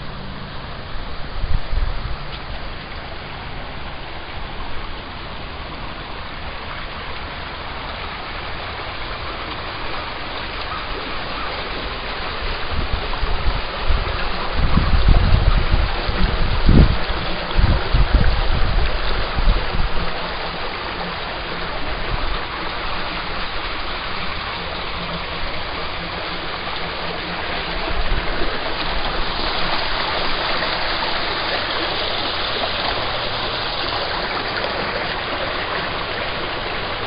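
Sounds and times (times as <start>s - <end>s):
wind buffeting microphone: 0.8s - 2.7s, 11.7s - 37.0s
brook rushing over rocks: 1.5s - 37.0s.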